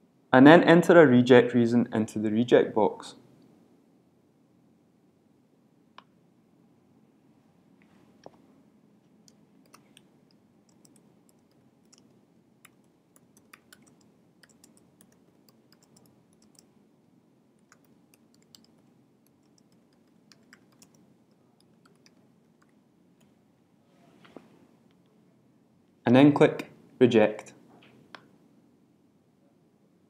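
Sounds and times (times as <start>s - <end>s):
low room hiss: 0.0s - 30.0s
typing on a keyboard: 10.7s - 16.7s, 17.6s - 21.0s, 21.6s - 22.7s.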